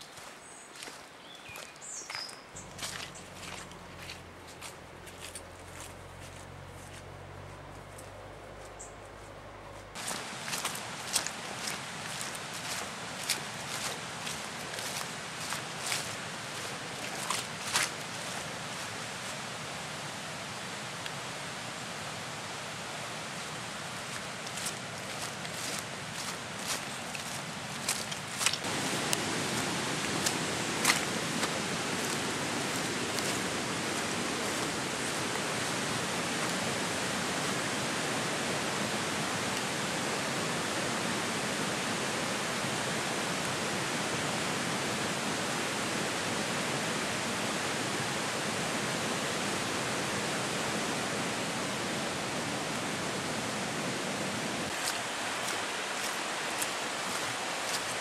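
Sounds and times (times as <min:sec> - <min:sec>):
footsteps crunching on leaves: 0:00.0 - 0:19.6, 0:23.5 - 0:37.1, 0:54.7 - 0:58.0
steady rushing noise: 0:22.1 - 0:47.1.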